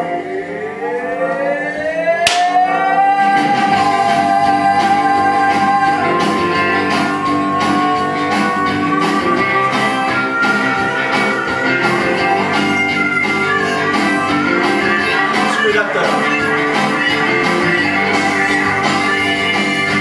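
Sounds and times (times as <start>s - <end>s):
upbeat country song: 0.0s - 20.0s.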